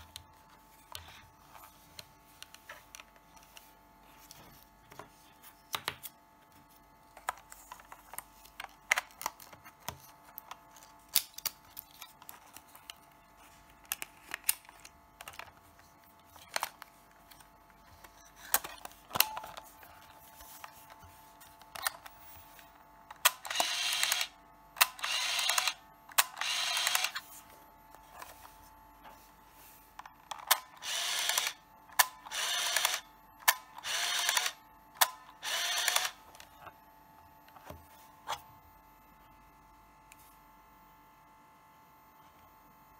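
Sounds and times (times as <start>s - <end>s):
film transport motor whirring: 13.8s - 28.9s, 30.0s - 36.5s.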